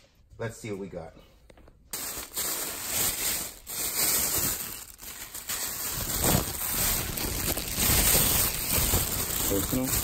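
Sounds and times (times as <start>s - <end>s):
plastic bag rustling: 1.9s - 10.0s.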